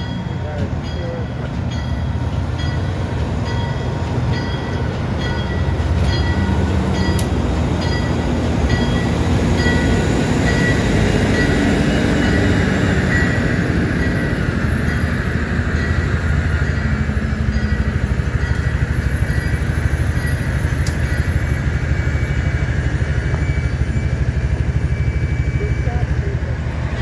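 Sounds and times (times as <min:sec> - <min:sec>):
locomotive bell ringing: 0:00.0 - 0:27.0
locomotive engine rumbling: 0:00.0 - 0:27.0.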